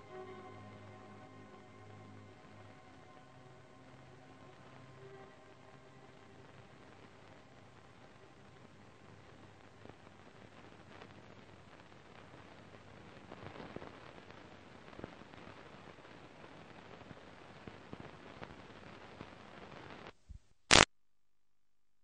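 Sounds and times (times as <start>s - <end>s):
tape hiss with crackles: 0.0s - 20.9s
loud burst of static: 4.3s - 20.1s.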